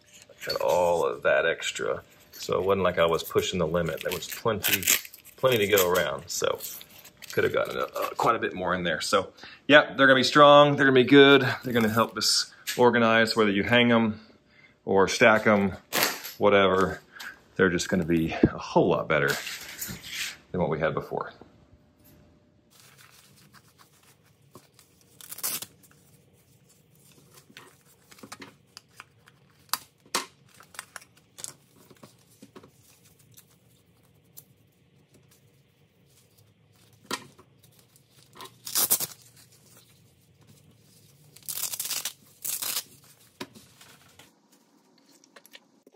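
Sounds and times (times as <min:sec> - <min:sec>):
hook-and-loop straps ripping apart: 0:03.9 - 0:06.0, 0:24.7 - 0:25.9, 0:38.2 - 0:39.5, 0:41.3 - 0:43.1.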